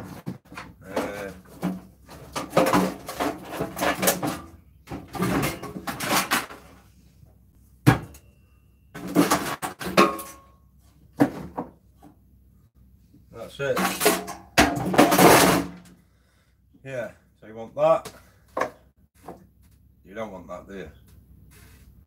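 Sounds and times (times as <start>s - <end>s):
metal parts clattering: 2.2s - 6.7s, 13.8s - 15.7s.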